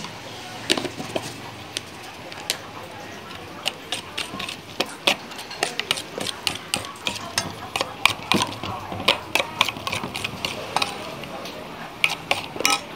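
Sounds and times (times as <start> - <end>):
metal spoon clinking in steel bowl: 3.6 - 12.9.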